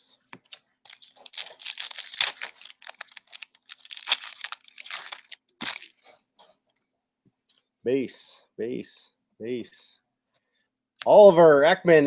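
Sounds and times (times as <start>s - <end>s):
cards shuffling: 0.3s - 6.2s
foil wrapper crinkling: 0.4s - 6.1s.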